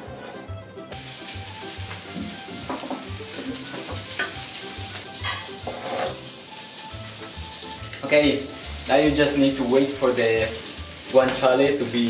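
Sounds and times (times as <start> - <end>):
meat sizzling in frying pan: 0.9 - 12.0
pieces scraped from cutting board: 5.3 - 6.2.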